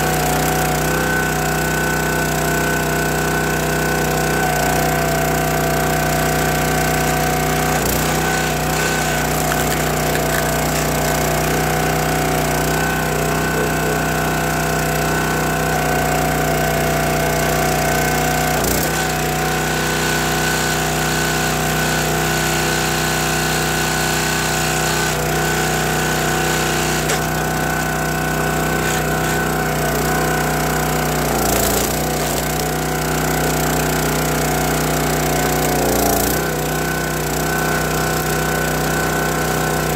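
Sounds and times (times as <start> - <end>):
log splitter engine running: 0.0 - 39.9.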